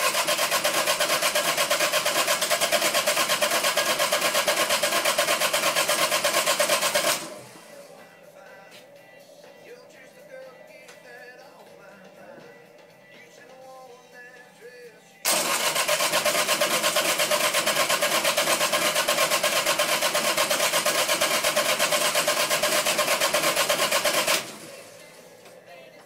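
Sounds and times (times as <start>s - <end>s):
diesel engine cranking on starter: 0.0s - 8.1s, 15.2s - 25.4s.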